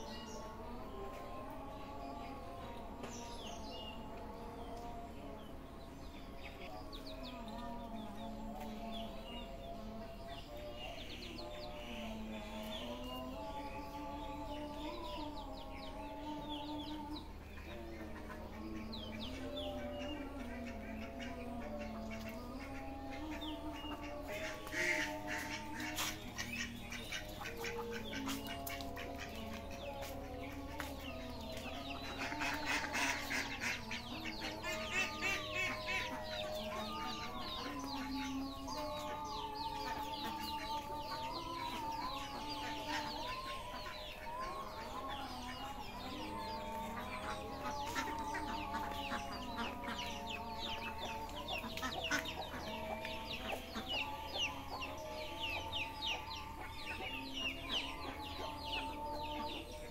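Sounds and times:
chickens clucking: 0.0s - 59.9s
chicks cheeping: 0.0s - 59.9s
music with wavering held tones: 0.0s - 59.9s.

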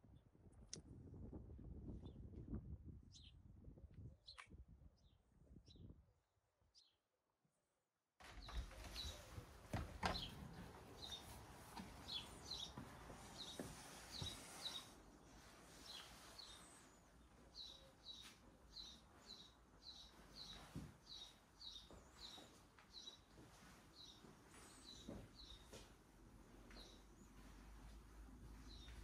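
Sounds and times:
small bird chirping: 12.0s - 15.0s.

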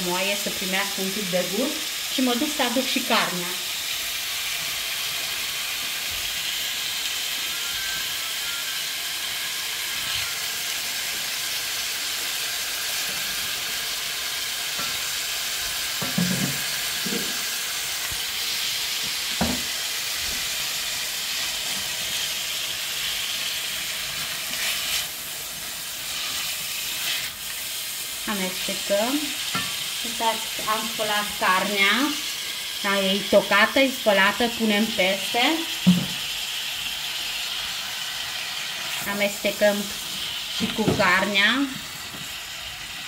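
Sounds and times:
vegetables sizzling in oil: 0.0s - 43.0s
spatula stirring vegetables: 3.9s - 33.6s.

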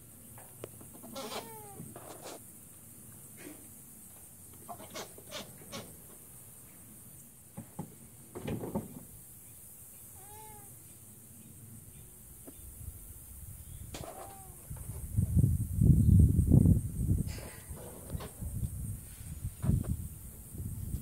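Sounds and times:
animal call: 1.0s - 2.1s, 10.2s - 10.8s, 14.0s - 14.7s.

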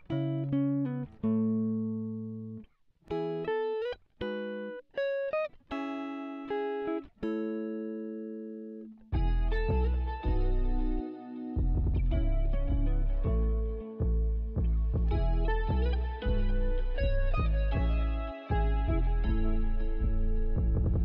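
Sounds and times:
plucked guitar melody: 0.0s - 21.0s
bass and accompaniment: 9.2s - 21.0s.

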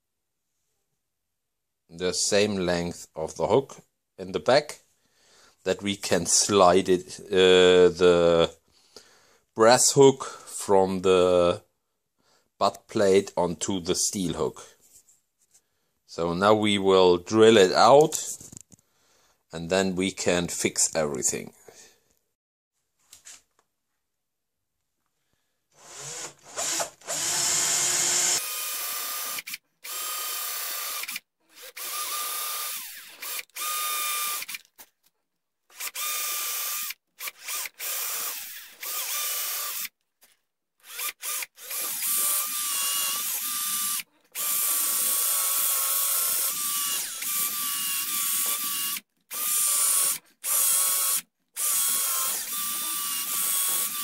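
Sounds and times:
cordless drill boring into wood: 25.8s - 34.8s, 35.7s - 40.0s, 40.8s - 54.0s.

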